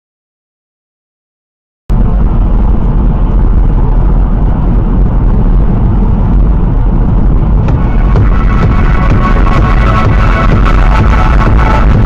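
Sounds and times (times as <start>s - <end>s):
car road and engine noise: 1.9s - 12.0s.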